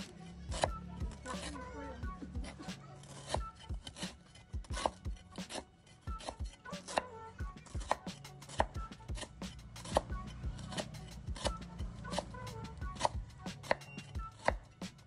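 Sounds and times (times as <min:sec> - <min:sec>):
cleaver chopping on wooden block: 0:00.5 - 0:00.8, 0:02.4 - 0:05.6, 0:06.2 - 0:07.0, 0:07.7 - 0:11.6, 0:13.0 - 0:14.7.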